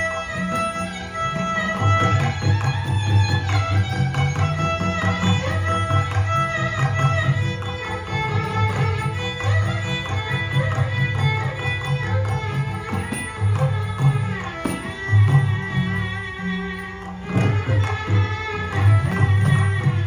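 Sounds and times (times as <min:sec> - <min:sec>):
violin melody with slides: 0:00.0 - 0:20.0
frame drum beating: 0:12.2 - 0:16.2
hand drum strokes: 0:12.3 - 0:16.2.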